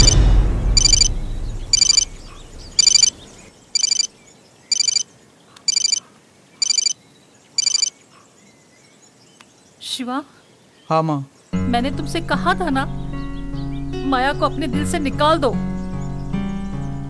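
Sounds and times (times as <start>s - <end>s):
phone ringtone trilling: 0.0s - 0.2s, 0.8s - 1.1s, 1.7s - 2.1s, 2.8s - 3.1s, 3.8s - 4.1s, 4.7s - 5.1s, 5.7s - 6.0s, 6.6s - 7.0s, 7.6s - 7.9s
deep rumble: 0.0s - 3.4s.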